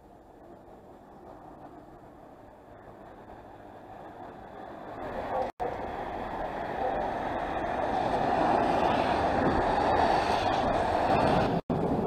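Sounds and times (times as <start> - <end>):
road traffic rush: 0.0 - 12.0.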